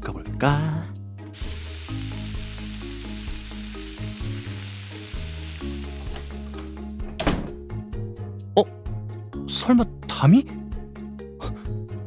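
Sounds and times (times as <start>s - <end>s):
soft background music: 0.0s - 12.0s
meat sizzling in a hot pan: 1.3s - 6.8s.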